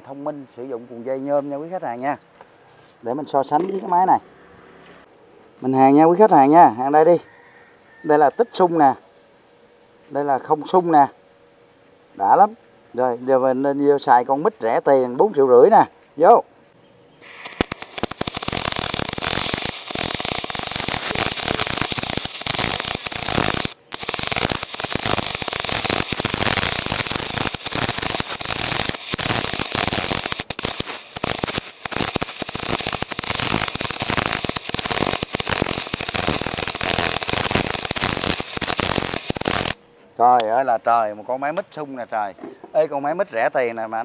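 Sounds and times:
welding arc crackle and hiss: 17.2s - 39.8s.

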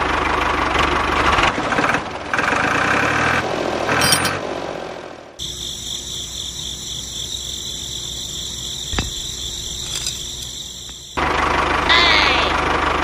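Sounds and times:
engine-like running sound: 0.0s - 13.0s
crickets chirping: 5.4s - 11.2s.

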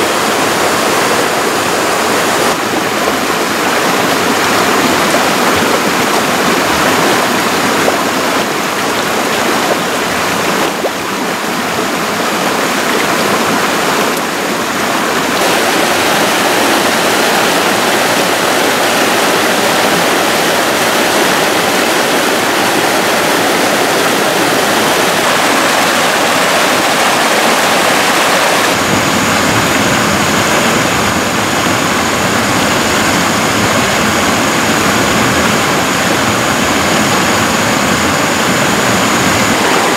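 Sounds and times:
stream rushing over stones: 0.0s - 39.9s.

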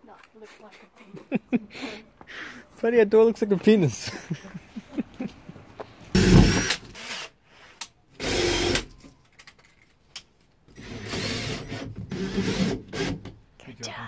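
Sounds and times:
cordless drill drilling into plywood: 6.2s - 7.4s, 8.2s - 8.9s, 10.8s - 13.3s.

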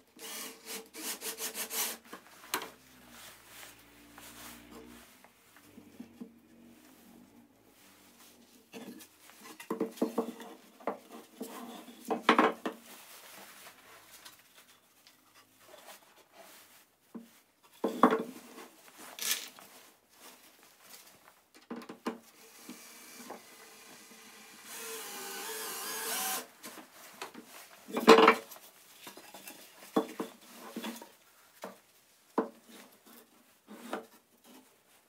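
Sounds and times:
cordless drill driving screw: 0.2s - 1.9s, 22.4s - 26.5s.

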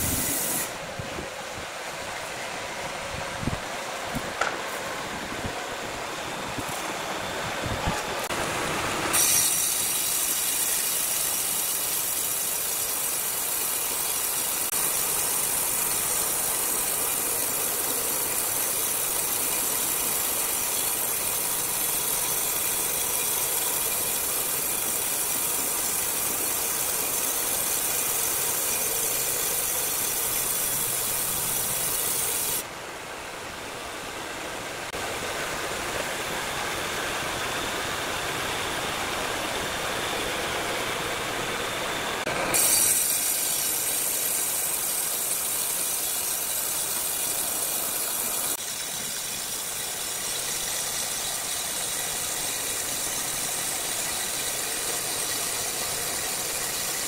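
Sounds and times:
band saw cutting wood: 0.0s - 0.8s, 7.9s - 32.6s, 39.8s - 57.0s
band saw machine running: 0.0s - 0.9s, 4.3s - 32.6s, 36.4s - 57.0s.

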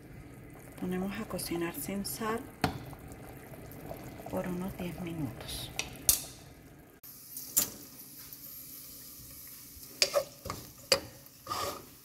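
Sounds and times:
onion frying in a pan: 0.0s - 12.0s
wooden spoon scraping a pan: 10.0s - 12.0s.

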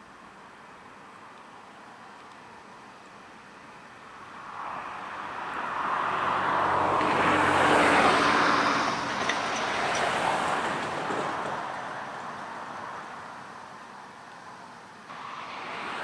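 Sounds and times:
vehicle passing by: 4.4s - 13.2s, 15.1s - 16.0s.

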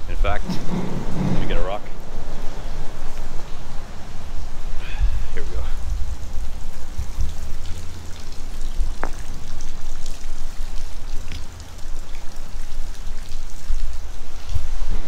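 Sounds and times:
steady low rumble: 0.0s - 12.1s
rain falling and dripping: 0.0s - 15.0s.

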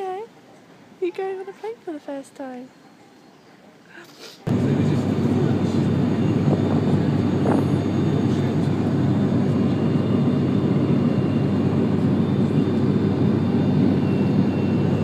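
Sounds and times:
airliner engines droning in cabin: 4.4s - 15.0s.

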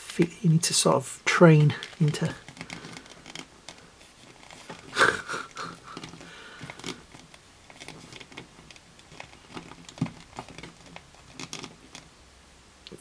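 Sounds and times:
person breathing loudly: 4.9s - 7.0s
plastic figure clicking and tapping: 5.6s - 12.1s.

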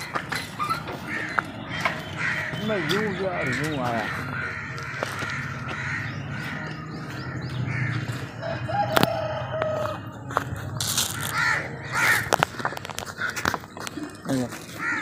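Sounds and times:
crows cawing: 0.0s - 10.0s, 10.8s - 15.0s
rooster crowing: 8.4s - 10.0s.

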